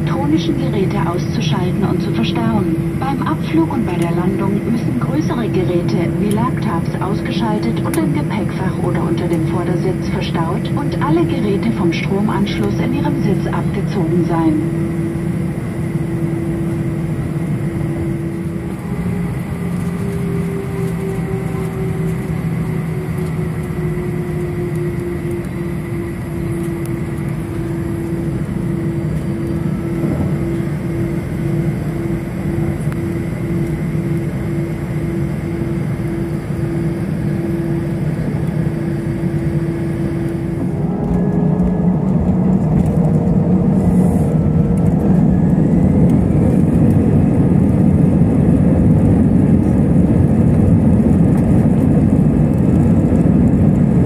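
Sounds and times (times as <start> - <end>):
jet engines humming: 0.0 - 54.0.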